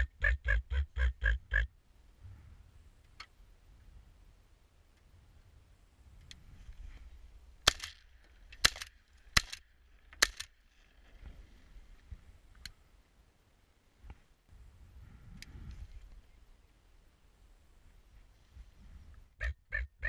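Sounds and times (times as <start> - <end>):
shotgun shots: 7.6 - 8.0, 8.6 - 9.6.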